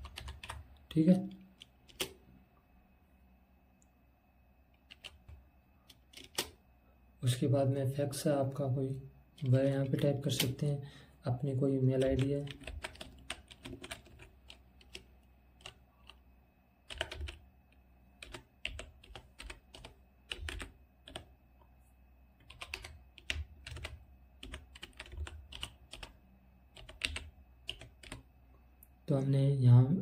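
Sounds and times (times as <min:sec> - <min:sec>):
computer keyboard typing: 0:00.0 - 0:02.2, 0:04.8 - 0:06.6, 0:11.9 - 0:16.2, 0:16.8 - 0:17.5, 0:18.2 - 0:21.3, 0:22.4 - 0:28.3.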